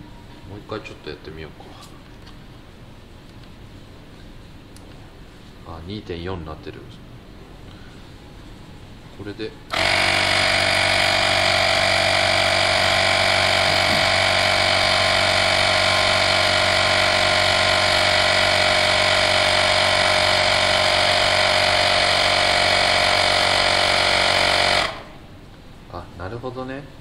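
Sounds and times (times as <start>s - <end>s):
tyre inflator compressor running: 9.7s - 25.4s.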